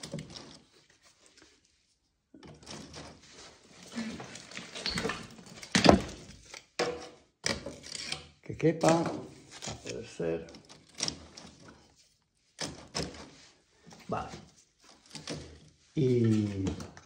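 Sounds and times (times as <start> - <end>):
firewood rustling and clattering: 0.0 - 1.6, 2.4 - 17.0.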